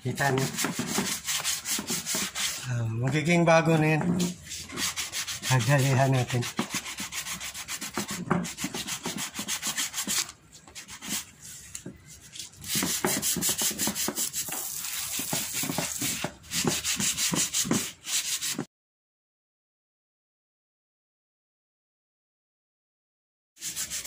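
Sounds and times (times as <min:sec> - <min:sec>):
sandpaper rubbing on plastic: 0:00.0 - 0:02.6, 0:04.2 - 0:18.7, 0:23.6 - 0:24.0.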